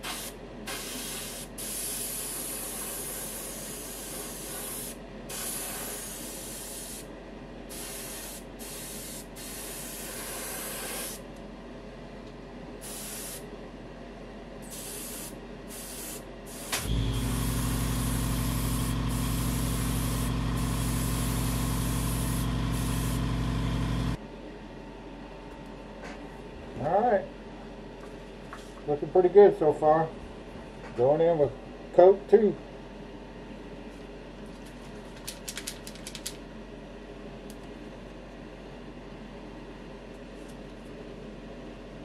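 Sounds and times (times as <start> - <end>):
airbrush hissing in bursts: 0.0 - 7.1, 7.7 - 11.2, 12.8 - 13.4, 14.7 - 23.3
electric motor humming: 16.8 - 24.2.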